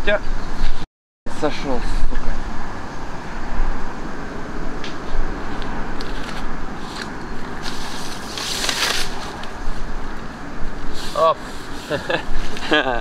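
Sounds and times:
wind buffeting microphone: 0.1s - 13.0s
loud hiss: 10.7s - 13.0s.

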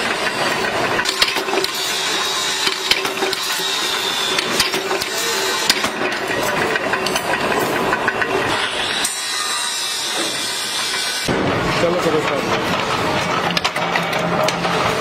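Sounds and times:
power press running: 0.0s - 15.0s
sharp metallic clicks and knocks: 0.2s - 1.9s, 2.6s - 5.1s, 5.7s - 9.2s, 10.9s - 15.0s.

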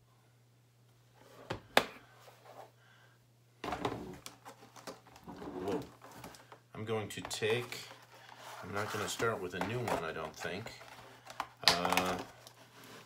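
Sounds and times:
art supplies clattering and rustling: 3.6s - 13.0s.

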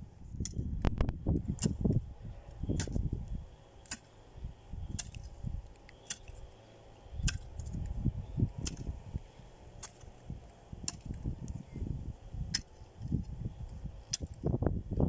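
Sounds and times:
wind on microphone: 0.0s - 3.6s, 4.4s - 5.7s, 7.1s - 15.0s
hoe chopping into soil: 2.7s - 3.1s, 3.8s - 4.1s, 4.9s - 5.4s, 6.0s - 6.4s, 7.2s - 7.8s, 8.6s - 9.0s, 9.8s - 10.2s, 10.8s - 11.3s, 14.1s - 14.4s.

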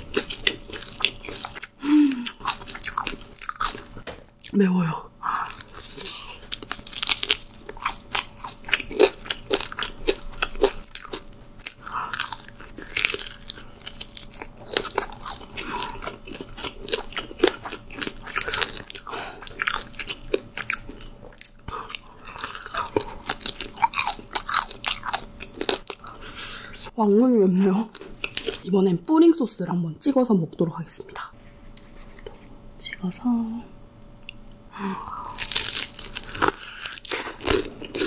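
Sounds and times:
chewing: 0.0s - 4.5s, 5.4s - 26.9s, 27.6s - 28.6s
crunching bites of fried chicken: 5.5s - 26.2s, 35.3s - 38.0s.

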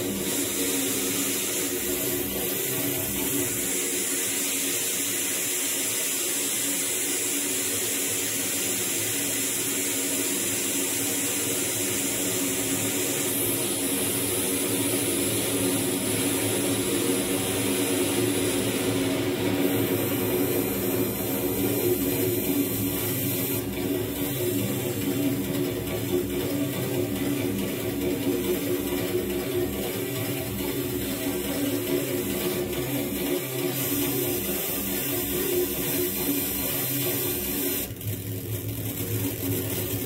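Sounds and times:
rushing electronic hiss: 0.0s - 40.0s
held low synth tones: 11.3s - 39.9s.

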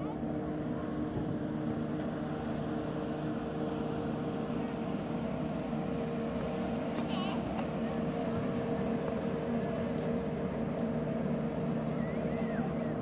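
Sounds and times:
mechanical drone: 7.4s - 13.0s.

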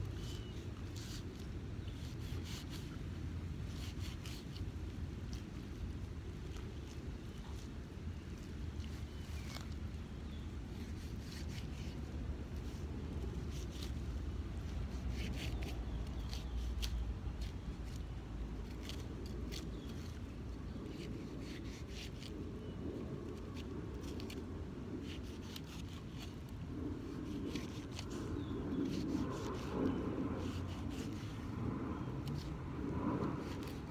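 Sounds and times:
knife slicing fruit: 0.1s - 3.0s, 3.7s - 4.7s, 8.8s - 12.0s, 12.6s - 22.8s, 25.0s - 26.4s, 27.0s - 32.6s.

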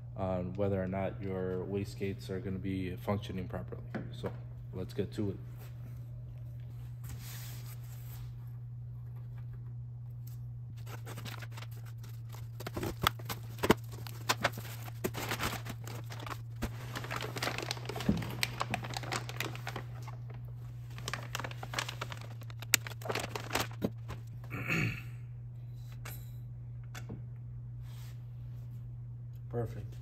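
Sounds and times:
steady low hum: 0.0s - 30.0s
packaging crinkling and tearing: 10.8s - 24.3s.

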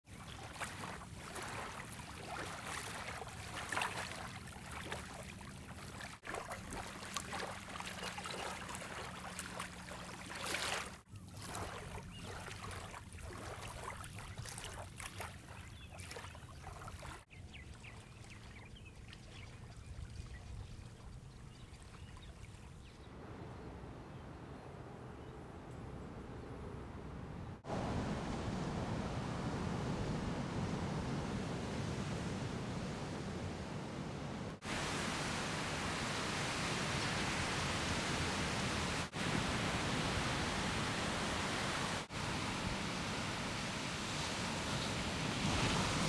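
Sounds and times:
water at the shore: 0.0s - 46.0s
wind: 0.0s - 46.0s.

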